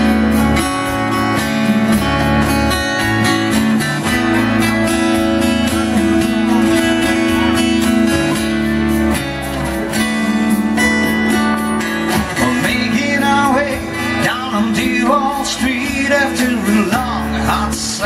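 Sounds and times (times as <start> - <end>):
acoustic guitar strumming: 0.0 - 18.0
man singing: 12.0 - 18.0.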